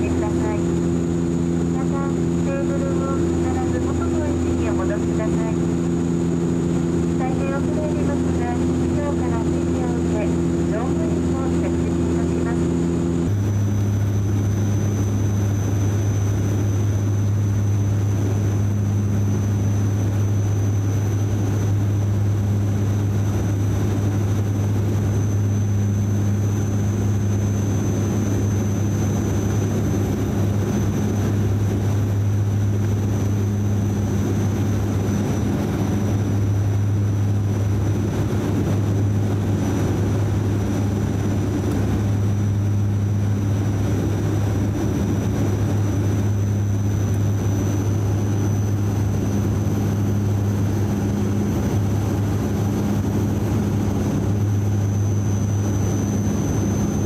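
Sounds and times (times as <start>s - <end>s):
propellers droning: 0.0s - 57.0s.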